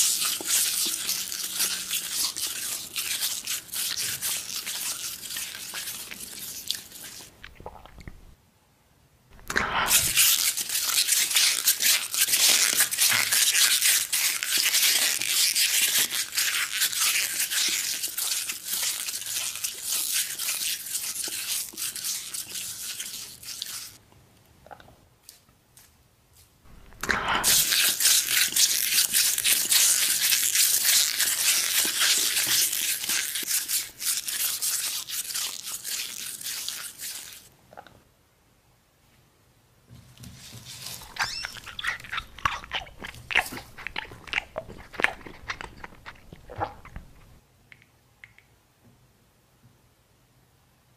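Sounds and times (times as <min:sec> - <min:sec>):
crunchy chewing: 0:26.7 - 0:37.5, 0:40.7 - 0:47.4.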